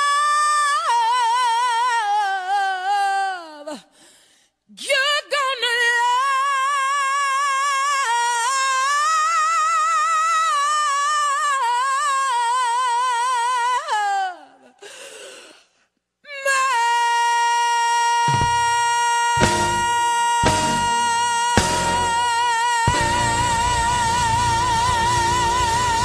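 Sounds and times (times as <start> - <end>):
person singing long high note: 16.7 - 26.0.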